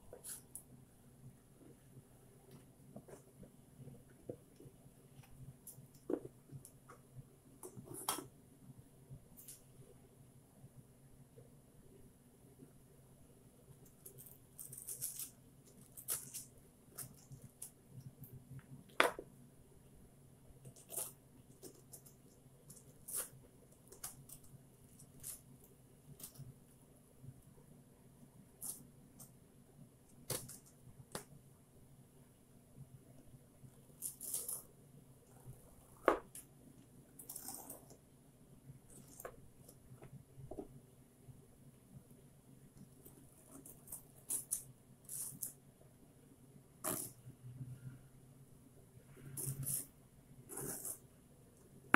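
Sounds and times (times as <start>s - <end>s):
spoon scraping zucchini: 49.2s - 51.1s.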